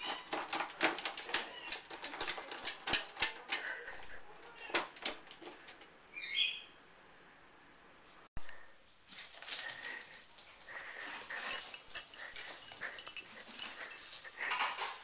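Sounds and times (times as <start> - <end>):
bottles rustling and rattling: 9.0 - 15.0.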